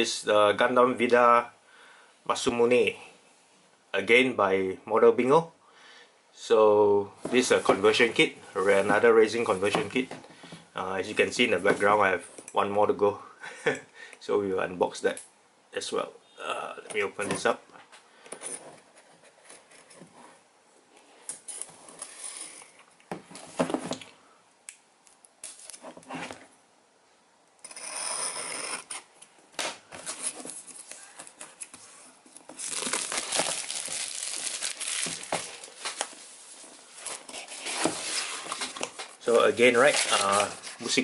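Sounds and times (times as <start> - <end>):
plastic wrap crinkling and tearing: 32.4 - 41.0.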